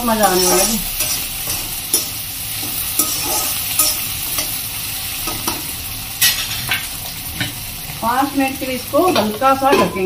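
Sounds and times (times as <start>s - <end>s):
vegetables sizzling in hot oil: 0.0s - 10.0s
metal spatula scraping a pan: 0.2s - 4.6s.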